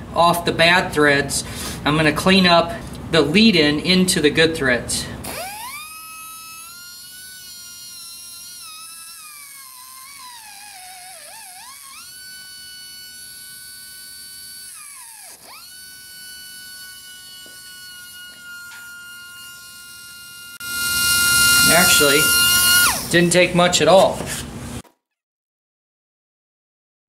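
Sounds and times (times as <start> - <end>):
die grinder whining: 5.1 - 24.8.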